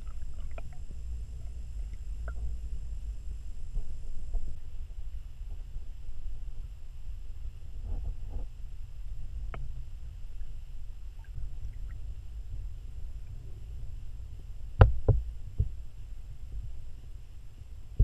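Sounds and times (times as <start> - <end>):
underwater rumble of moving water: 0.0 - 18.0.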